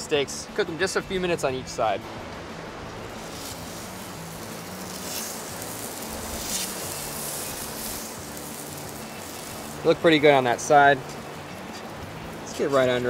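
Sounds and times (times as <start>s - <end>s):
fish sizzling on a griddle: 1.6s - 13.0s.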